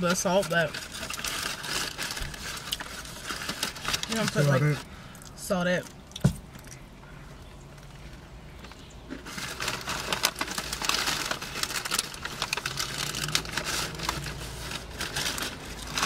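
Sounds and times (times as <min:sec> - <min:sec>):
paper bag rustling and crinkling: 0:00.0 - 0:04.9, 0:08.1 - 0:16.0.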